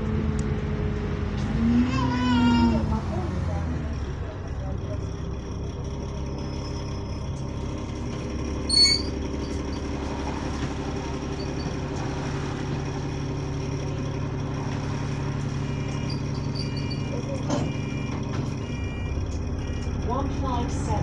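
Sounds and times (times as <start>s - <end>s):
bus diesel engine idling: 0.0s - 21.0s
loud electronic beep: 8.7s - 9.2s, 15.6s - 19.9s.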